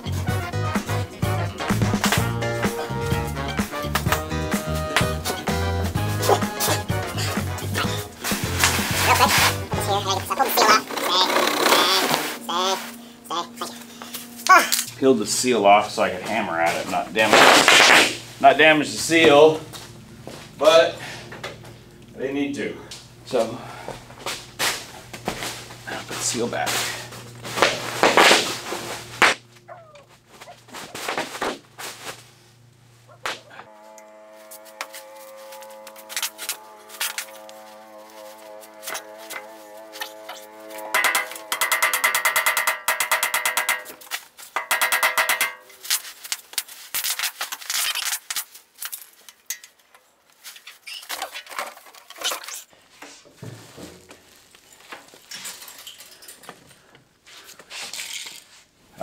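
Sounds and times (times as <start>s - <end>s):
steady low hum: 2.2s - 46.0s
rubbing and scraping: 6.1s - 13.0s, 16.3s - 18.3s, 34.3s - 49.2s
short squeaks: 50.5s - 51.5s.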